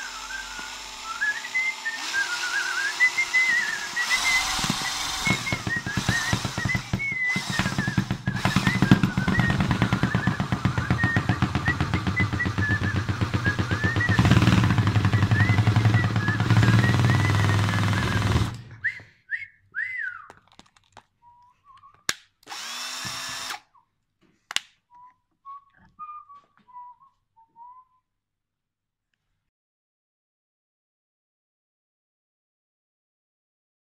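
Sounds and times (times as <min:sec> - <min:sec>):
power drill motor hum: 0:00.0 - 0:18.6, 0:22.4 - 0:23.7
toy rattling in drill chuck: 0:00.0 - 0:18.6, 0:22.4 - 0:23.7
wavering high whistle: 0:00.0 - 0:20.3.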